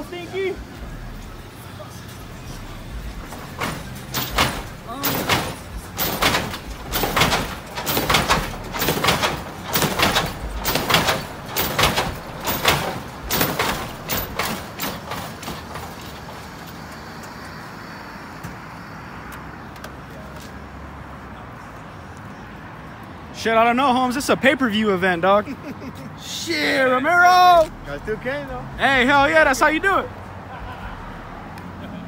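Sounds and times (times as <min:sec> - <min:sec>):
suspension clunks: 0:02.1 - 0:17.6, 0:27.2 - 0:31.6.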